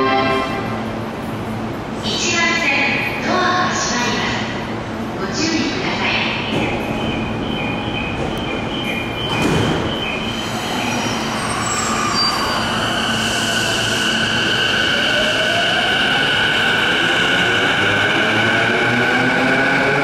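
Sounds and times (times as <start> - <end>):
electric train running on rails: 6.0 - 20.0.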